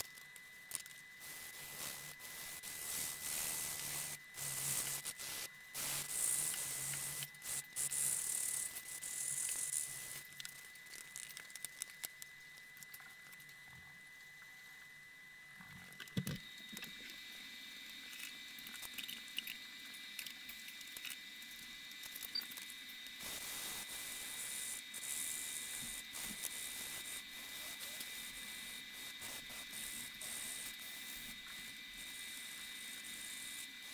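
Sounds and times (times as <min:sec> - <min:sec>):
abrasive paper scratching steel: 0:00.7 - 0:10.2.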